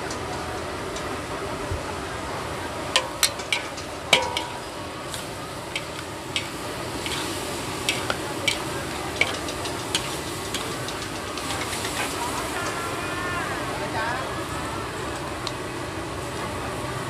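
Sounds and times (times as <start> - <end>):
food sizzling: 0.0 - 17.0
ladle clanking against wok: 2.7 - 13.7.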